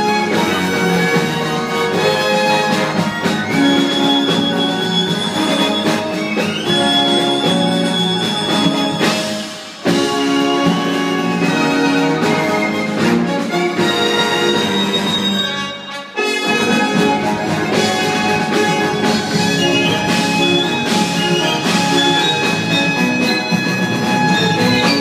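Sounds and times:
orchestral strings melody: 0.0s - 25.0s.

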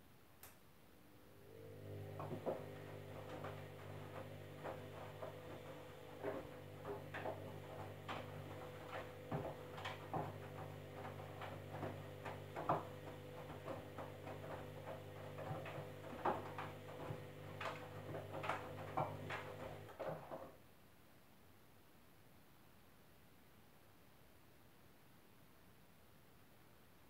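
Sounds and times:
washing machine motor humming: 1.1s - 20.5s
wet laundry tumbling: 1.6s - 20.6s.

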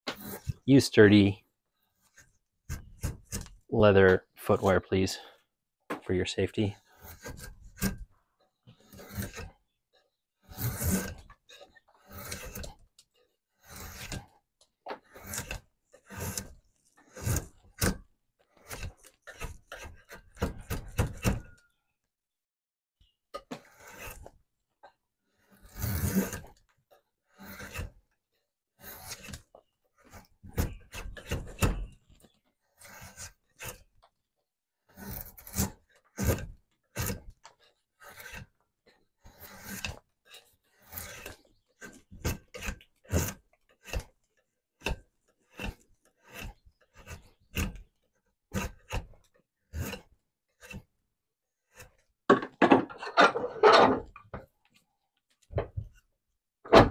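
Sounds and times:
drawknife scraping wood: 0.0s - 1.2s, 1.8s - 5.4s, 6.8s - 21.7s, 23.3s - 56.1s.

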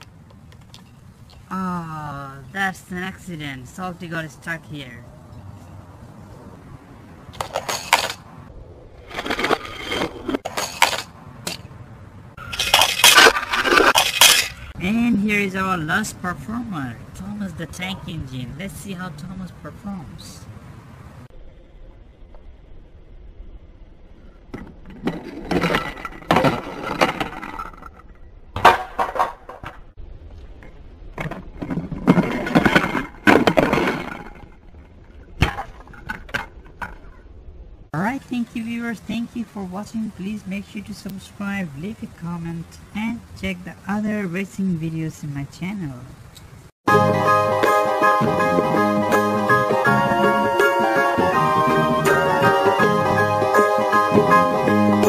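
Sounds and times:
toy vehicles clattering: 7.4s - 8.3s, 12.4s - 14.8s.

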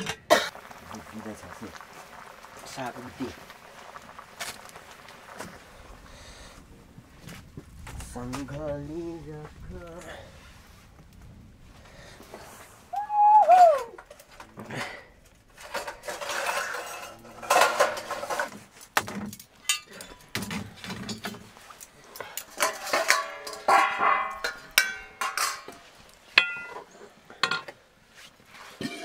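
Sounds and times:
steel dishes clinking and scraping: 14.2s - 18.6s, 19.6s - 21.5s, 22.2s - 27.8s, 28.7s - 29.0s.

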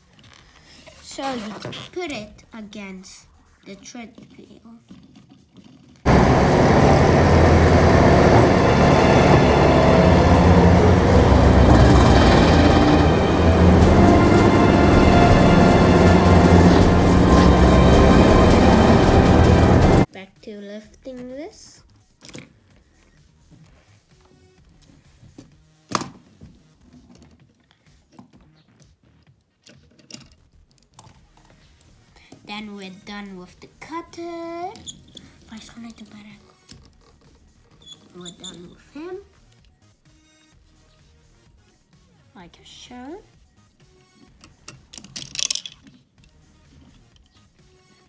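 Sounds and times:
wood chipper engine and grinding: 6.1s - 20.1s
plastic bricks clicking together: 44.4s - 46.4s.

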